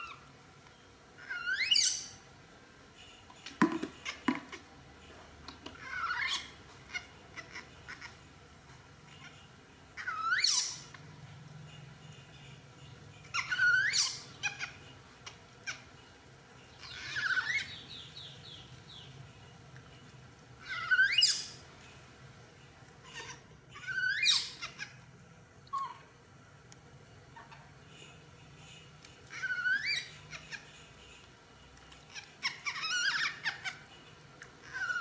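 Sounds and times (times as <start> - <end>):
infant monkey squealing: 1.2 - 2.1, 5.8 - 8.1, 10.0 - 11.0, 13.3 - 15.8, 16.8 - 17.8, 20.6 - 21.6, 23.0 - 25.0, 25.7 - 26.1, 29.3 - 30.8, 32.1 - 33.9, 34.6 - 35.0.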